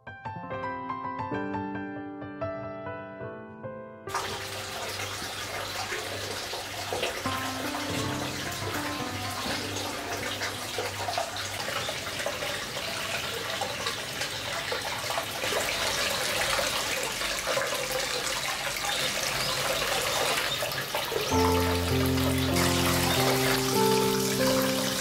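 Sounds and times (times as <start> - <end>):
soft background music: 0.2 - 6.0, 7.1 - 11.5, 21.2 - 25.0
water pouring into bath: 4.1 - 25.0.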